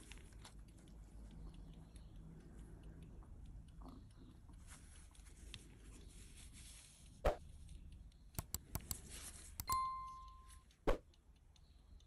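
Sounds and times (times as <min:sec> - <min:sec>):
faint steady hiss: 0:00.0 - 0:12.0
sharp clicks: 0:07.4 - 0:12.0.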